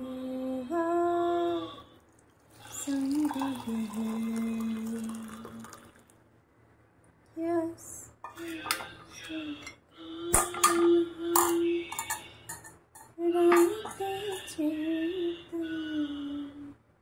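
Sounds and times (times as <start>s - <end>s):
woman singing wordless tune: 0.0s - 2.0s, 2.6s - 5.9s, 7.3s - 16.8s
kitchen utensils clinking: 8.3s - 9.8s, 10.4s - 14.6s.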